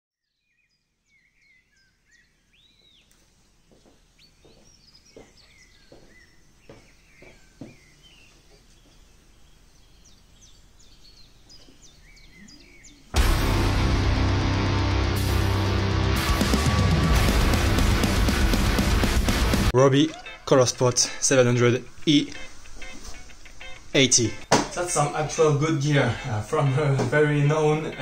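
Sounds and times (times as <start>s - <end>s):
birds chirping: 0.2s - 28.0s
footsteps on wooden floor: 2.8s - 9.1s, 11.5s - 11.9s.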